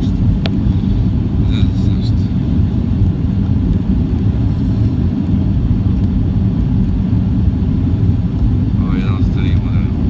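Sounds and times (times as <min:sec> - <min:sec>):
airliner cabin engine rumble: 0:00.0 - 0:10.0.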